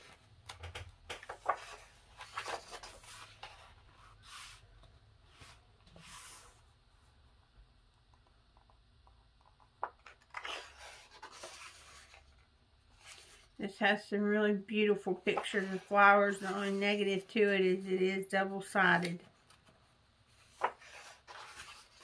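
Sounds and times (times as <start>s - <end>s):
book pages turning: 1.1s - 6.6s, 9.8s - 12.4s, 19.0s - 22.0s.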